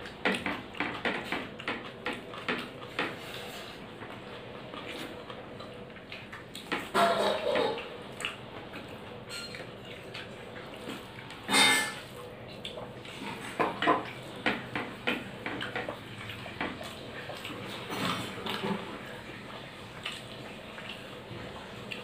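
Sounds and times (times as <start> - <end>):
mouth eating sounds: 4.1 - 11.3.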